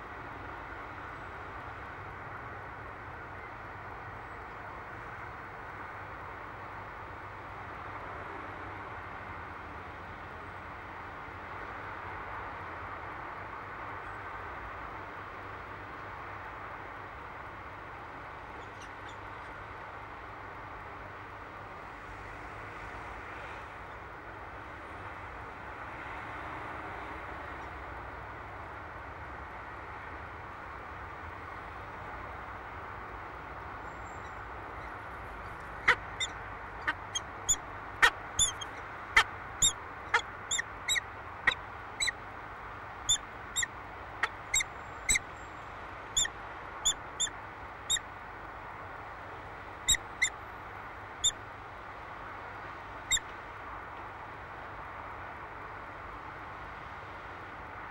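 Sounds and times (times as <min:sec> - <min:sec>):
falcon chipping calls: 0:34.2 - 0:42.2, 0:43.1 - 0:45.2.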